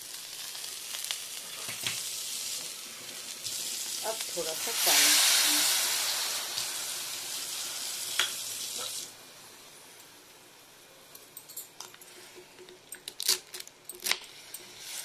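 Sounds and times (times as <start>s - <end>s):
food sizzling in a hot pan: 0.0s - 10.7s, 14.3s - 15.0s.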